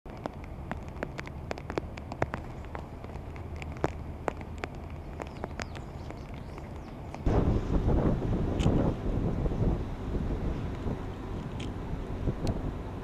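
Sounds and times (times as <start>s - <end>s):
raindrops ticking and tapping: 0.1s - 8.0s
low background rumble: 0.1s - 13.0s.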